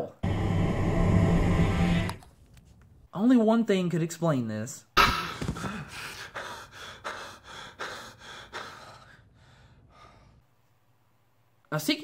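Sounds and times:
man panting: 0:05.1 - 0:10.5.

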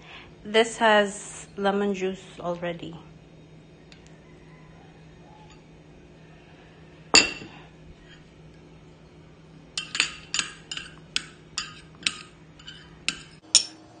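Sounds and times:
utensil clinking against glass bowl: 0:09.8 - 0:13.8.

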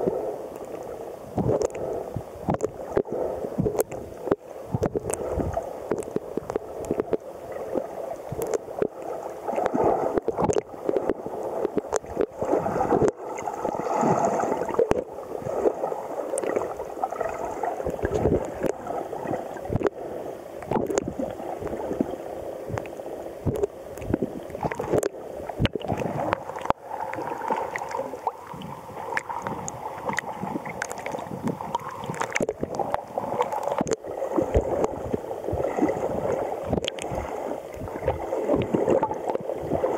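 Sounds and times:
muffled underwater sloshing: 0:00.0 - 0:39.9
small sharp clicks and pops: 0:00.5 - 0:01.8, 0:02.4 - 0:07.2, 0:07.8 - 0:12.3, 0:17.8 - 0:18.8, 0:20.6 - 0:21.8, 0:22.7 - 0:28.4, 0:29.2 - 0:35.0, 0:36.7 - 0:37.1.

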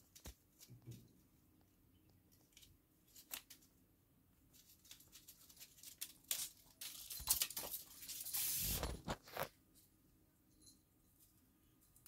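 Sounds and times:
rustling hiss: 0:08.2 - 0:09.0.

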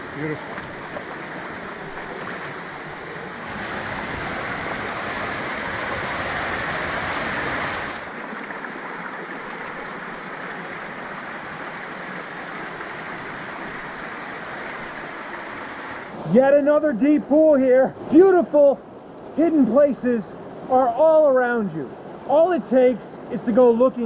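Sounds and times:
creek water rushing: 0:00.0 - 0:16.4.

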